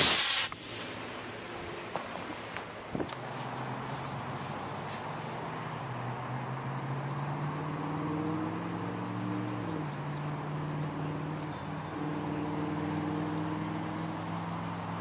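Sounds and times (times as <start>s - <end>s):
background hiss: 0.0s - 5.7s
engine hum: 0.0s - 15.0s.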